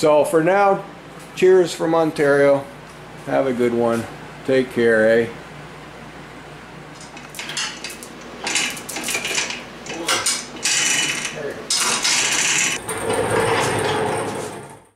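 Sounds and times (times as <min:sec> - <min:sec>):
metal tools clinking and clattering: 0:07.0 - 0:12.8.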